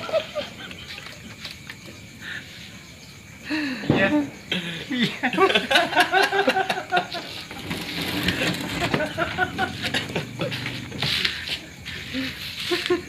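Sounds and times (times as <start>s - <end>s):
laughter in short bursts: 9.0s - 10.8s, 12.1s - 13.0s.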